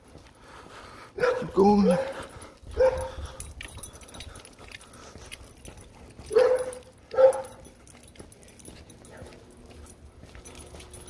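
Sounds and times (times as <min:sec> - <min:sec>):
dog barking: 0:01.2 - 0:03.3, 0:06.2 - 0:07.7.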